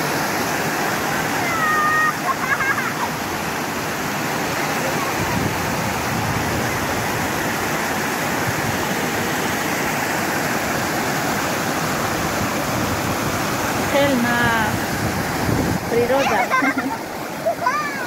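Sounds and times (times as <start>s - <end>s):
water cascading over ledge: 0.0s - 18.0s.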